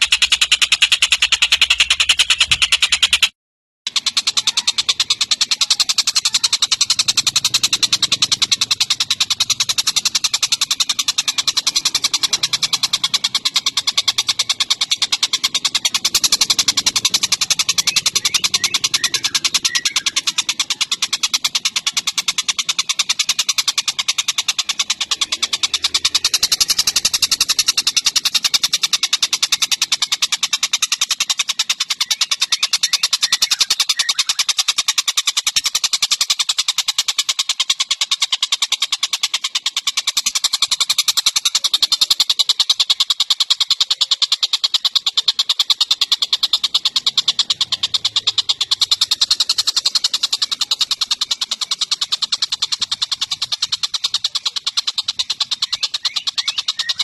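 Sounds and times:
bird calling in harsh chatter: 0.0s - 57.0s.

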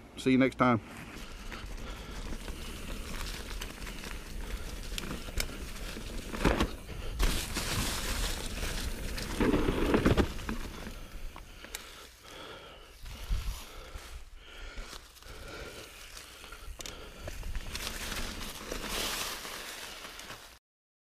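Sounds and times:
tyres crackling through leaves: 0.4s - 20.6s
bike rattling: 0.9s - 14.1s, 14.7s - 20.6s
bike knocks and bumps: 6.2s - 10.9s.

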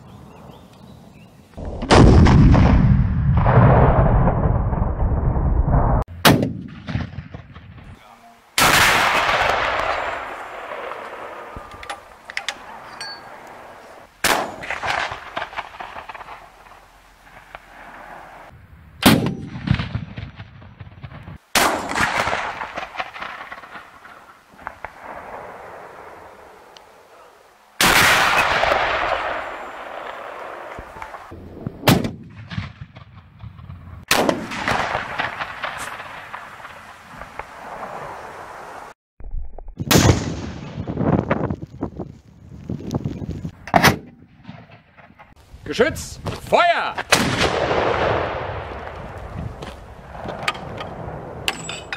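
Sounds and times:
cannon shots booming: 1.7s - 8.0s, 8.6s - 12.1s, 13.6s - 16.8s, 17.4s - 26.2s, 27.8s - 38.2s, 39.8s - 41.2s, 47.0s - 51.5s
sharp cracks: 8.6s - 12.7s, 13.4s - 26.9s, 27.8s - 38.0s, 46.8s - 49.3s.

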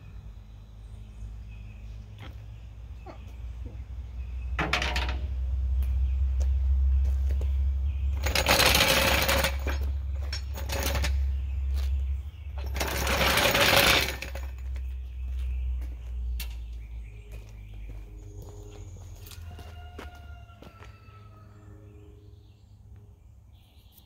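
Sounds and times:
floor jack wheels rattling on concrete: 4.6s - 5.3s, 8.0s - 15.2s.

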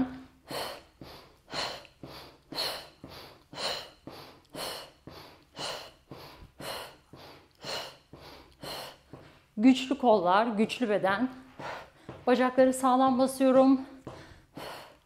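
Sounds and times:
woman breathing hard: 0.2s - 9.6s, 11.4s - 12.3s, 13.8s - 15.0s.

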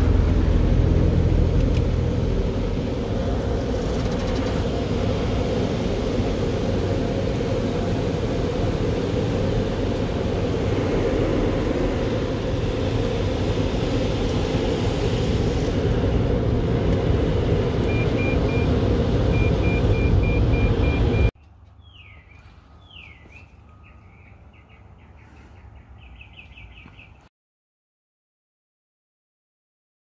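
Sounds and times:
car wash water spray: 1.6s - 21.2s
quick electronic beeps: 19.4s - 21.3s
bird-like chirps: 21.4s - 27.3s.

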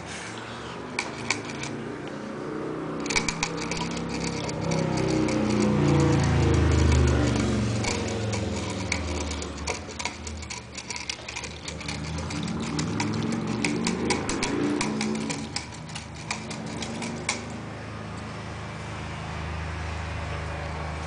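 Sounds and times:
claws scrabbling on wire bars: 0.8s - 1.9s, 3.0s - 17.6s.

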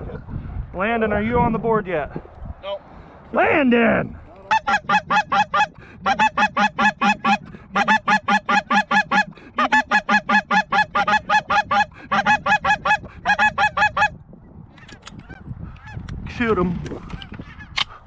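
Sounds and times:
goose call clucking honks: 4.5s - 14.1s.

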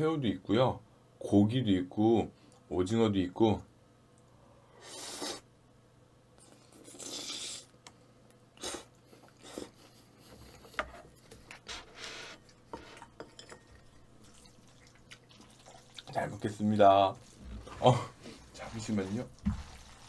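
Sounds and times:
sloppy slurping: 6.5s - 7.7s, 14.2s - 16.2s, 17.1s - 20.0s
wet chewing and smacking: 14.2s - 16.2s.

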